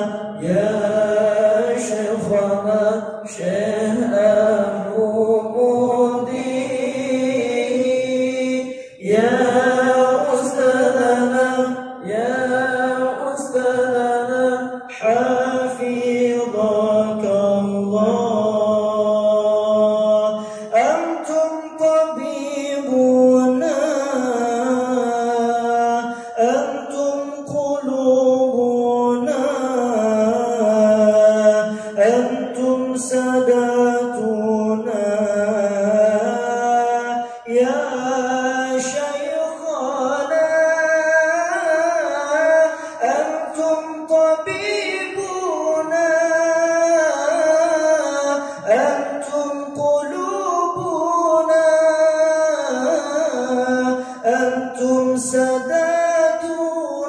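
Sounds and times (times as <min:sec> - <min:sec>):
person chanting devotional poem: 0:00.0 - 0:57.0.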